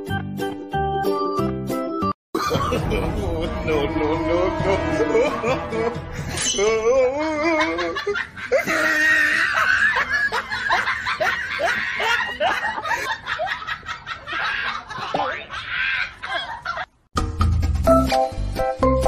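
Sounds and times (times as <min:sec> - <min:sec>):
person laughing hard: 0:02.4 - 0:03.9, 0:07.1 - 0:16.9.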